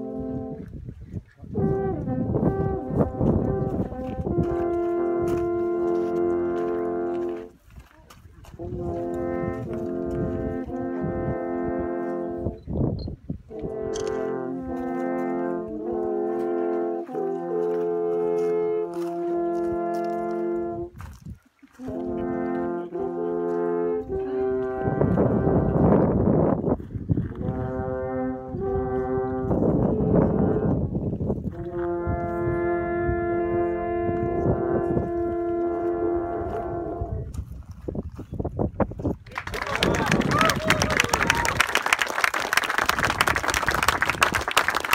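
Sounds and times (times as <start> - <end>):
alphorns playing long notes: 1.5 - 7.5, 8.6 - 12.6, 13.5 - 21.0, 21.8 - 26.1, 27.4 - 37.3.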